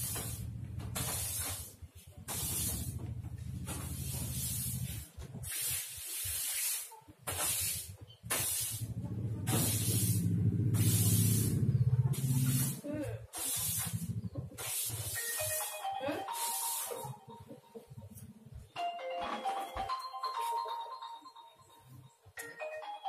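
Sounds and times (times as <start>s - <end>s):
broom sweeping a floor: 0.0s - 17.3s.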